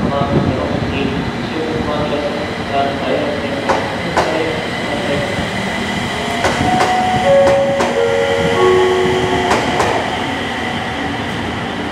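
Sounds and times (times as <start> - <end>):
train wheels clicking over rail joints: 3.6 - 4.6
steady high tones: 6.6 - 10.8.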